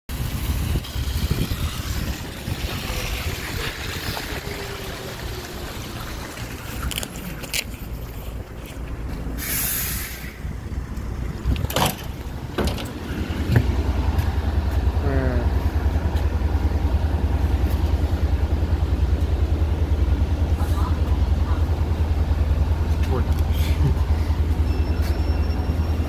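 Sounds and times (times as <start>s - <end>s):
bus engines idling: 0.1s - 26.0s
compressed air hiss: 9.4s - 10.5s.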